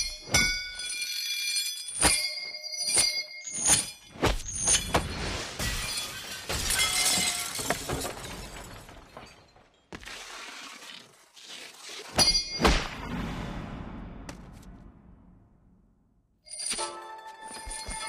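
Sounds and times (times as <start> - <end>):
glass shattering: 0.0 - 10.1, 12.1 - 13.0.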